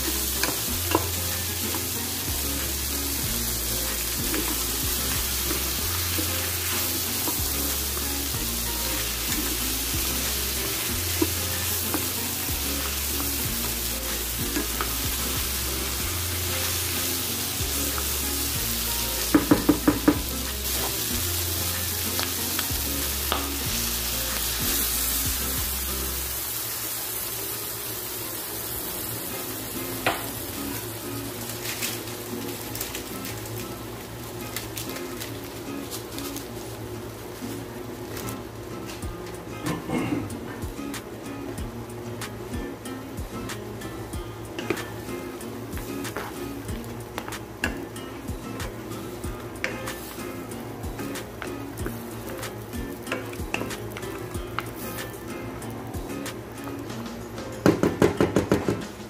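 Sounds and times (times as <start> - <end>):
meat sizzling in a pan: 0.0 - 39.0, 41.6 - 57.8
wooden spoon tapping a pan: 19.3 - 21.0, 30.0 - 30.3, 57.6 - 59.0.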